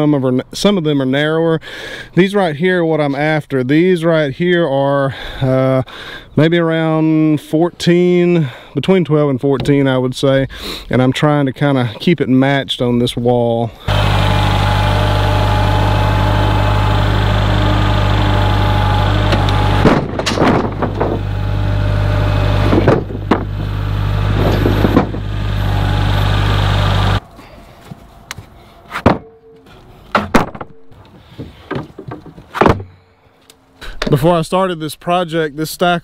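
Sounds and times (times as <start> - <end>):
tractor diesel engine running: 13.8 - 28.4
boards knocking: 19.2 - 21.3, 22.6 - 23.7, 24.4 - 25.3, 29.0 - 29.4, 30.1 - 32.9
lumber knocking and clattering: 19.3 - 21.3, 22.6 - 23.7, 24.4 - 25.3, 29.0 - 29.4, 30.1 - 33.0.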